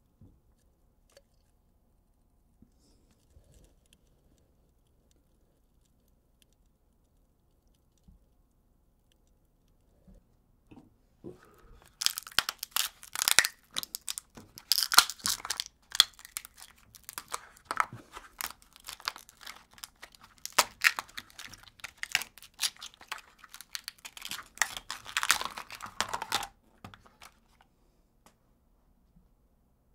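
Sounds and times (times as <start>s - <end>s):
plastic ice tray crackling: 11.8s - 27.4s.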